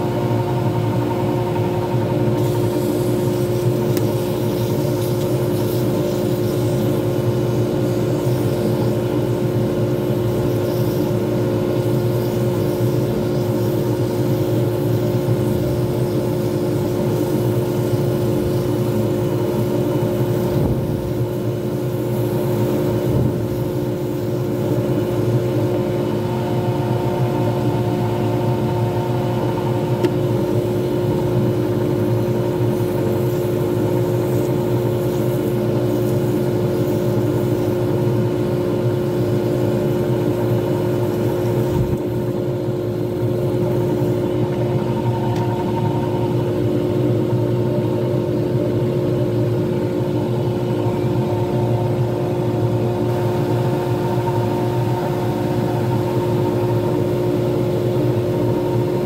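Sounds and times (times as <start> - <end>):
lathe motor humming: 35.5 - 59.0.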